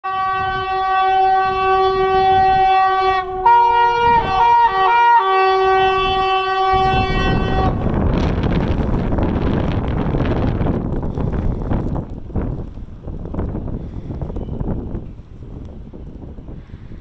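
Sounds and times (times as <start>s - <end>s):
train horn blast: 0.0s - 8.2s.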